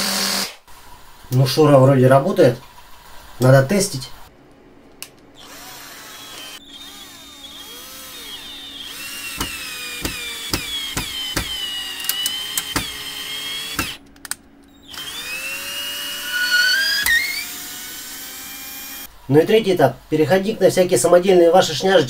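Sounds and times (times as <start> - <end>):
cordless drill motor whine: 0.0 - 0.6, 5.4 - 14.0, 14.7 - 19.1
sharp clicks: 9.3 - 13.1, 13.7 - 15.1.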